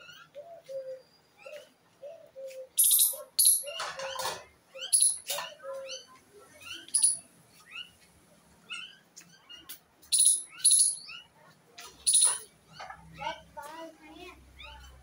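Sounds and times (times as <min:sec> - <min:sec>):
harsh bird screeches: 0:12.0 - 0:12.5.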